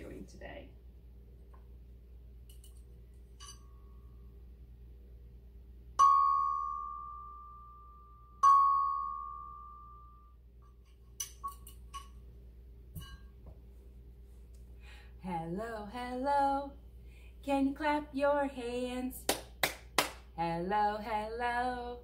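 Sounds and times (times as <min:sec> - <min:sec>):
chime bar struck with mallet: 0:06.0 - 0:07.8, 0:08.4 - 0:10.2.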